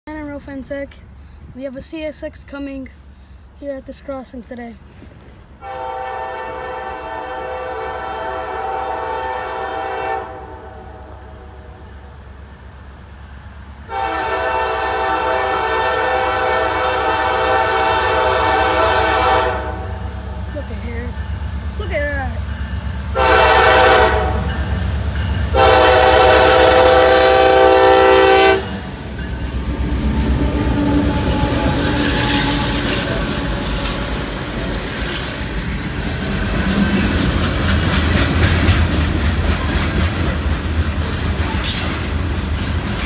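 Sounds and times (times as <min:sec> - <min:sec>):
locomotive engines passing: 0:00.1 - 0:43.0
locomotive air horn: 0:05.6 - 0:11.8, 0:13.9 - 0:20.2, 0:23.1 - 0:24.7, 0:25.5 - 0:28.8, 0:29.8 - 0:34.4
train wheels clickety-clack: 0:28.6 - 0:43.0.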